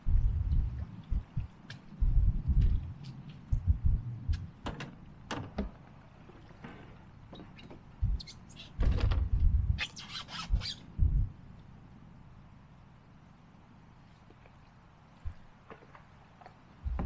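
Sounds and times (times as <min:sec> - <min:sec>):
heavy low thuds: 0:00.0 - 0:04.6, 0:08.0 - 0:09.8, 0:10.5 - 0:11.4.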